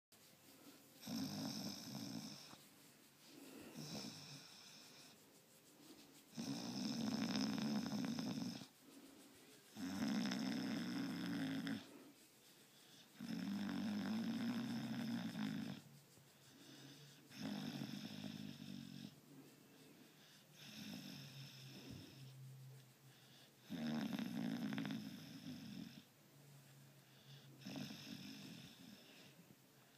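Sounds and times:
dog breathing: 0.5s - 13.5s, 14.3s - 22.4s
dog snoring: 1.0s - 2.6s, 3.7s - 5.2s, 6.3s - 8.7s, 9.7s - 11.9s, 13.2s - 15.8s, 16.6s - 19.2s, 20.4s - 22.3s, 23.6s - 26.1s, 27.1s - 29.3s.

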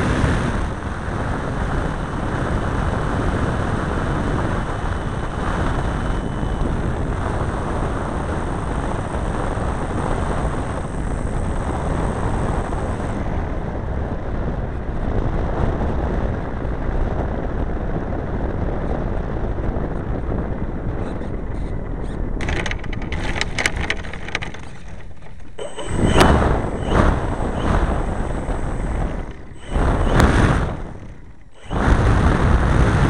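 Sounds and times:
model plane engine rumble: 0.0s - 15.6s, 18.4s - 33.0s
rattling knocks: 22.4s - 26.9s.

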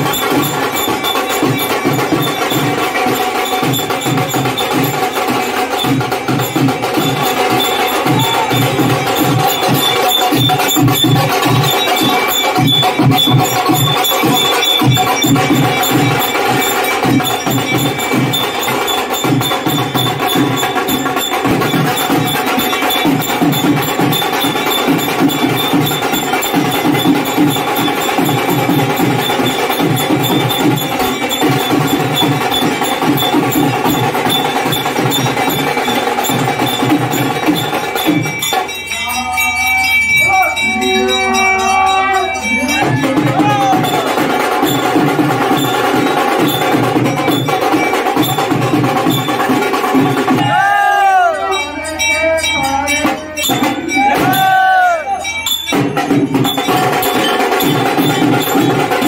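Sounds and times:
held notes: 0.0s - 45.6s
bells ringing: 0.0s - 59.0s
drums and percussion beat: 0.0s - 59.0s
voices singing: 38.8s - 44.3s, 50.2s - 55.4s.

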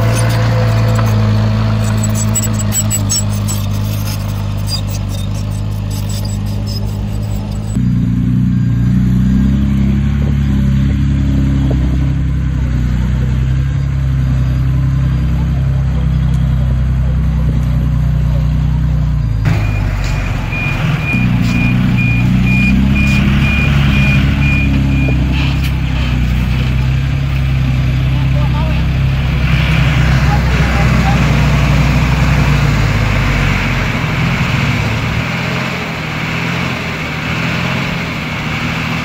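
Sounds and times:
diesel engine under load: 0.0s - 39.0s
reversing alarm beeping: 19.5s - 25.6s.

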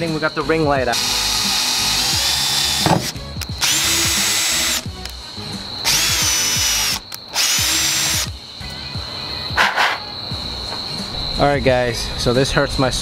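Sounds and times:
cordless drill boring through metal: 0.9s - 4.8s, 5.8s - 8.3s.

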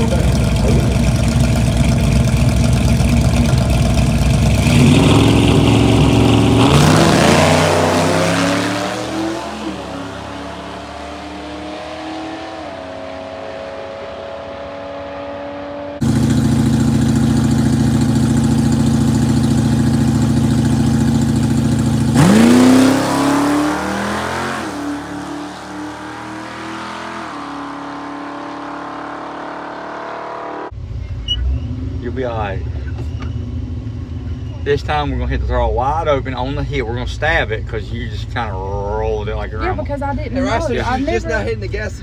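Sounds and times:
race truck engine revving: 0.0s - 32.5s.

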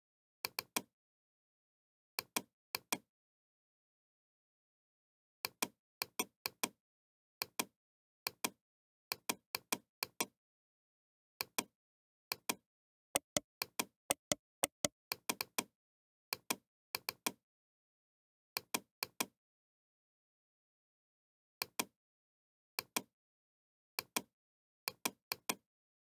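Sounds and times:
computer mouse clicking: 13.2s - 13.4s, 14.1s - 15.6s.

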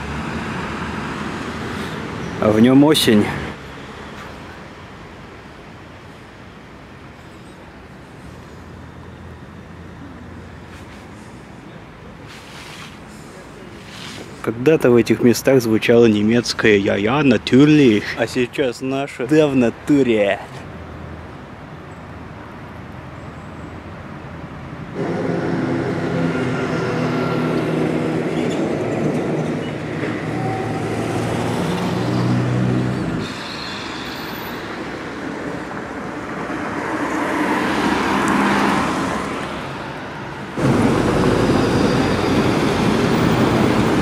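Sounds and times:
vehicle passing: 24.9s - 33.3s, 34.6s - 44.0s
vehicle engine humming: 24.9s - 33.4s, 34.8s - 44.0s.

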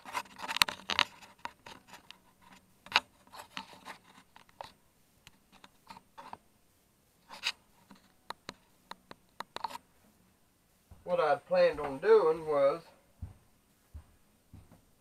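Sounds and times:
small clicks taps and rustles: 0.0s - 6.4s, 7.2s - 9.9s.

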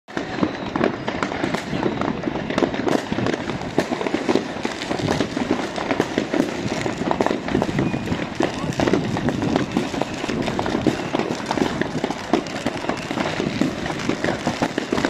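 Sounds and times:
fireworks bangs and crackles: 0.1s - 15.0s.

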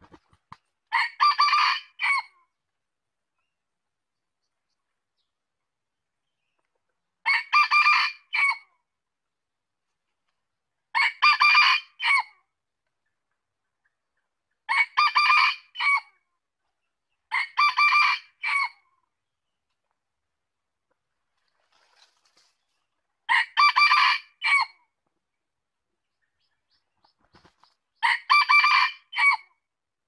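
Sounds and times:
rooster crowing: 23.3s - 24.7s, 28.0s - 29.4s.

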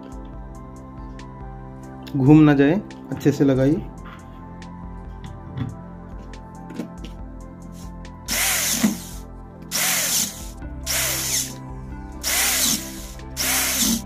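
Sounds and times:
cordless drill driving screws: 8.3s - 9.1s, 9.7s - 11.6s, 12.2s - 14.0s.

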